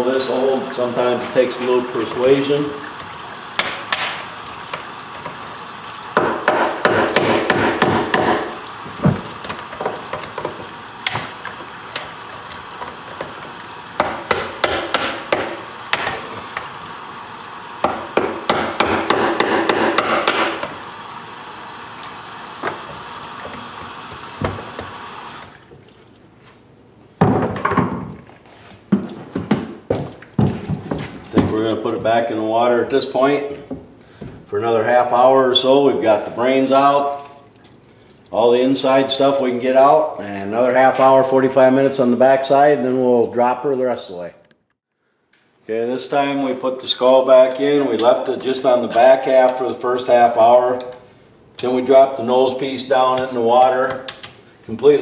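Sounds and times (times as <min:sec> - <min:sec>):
water running from a hose: 0:00.1 - 0:26.1.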